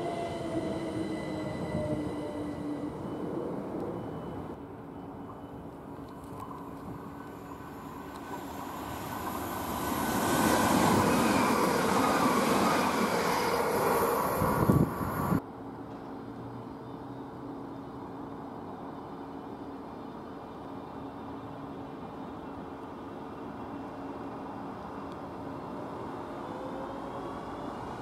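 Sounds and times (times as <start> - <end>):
electric train approaching: 0.0 - 5.9, 6.5 - 15.4.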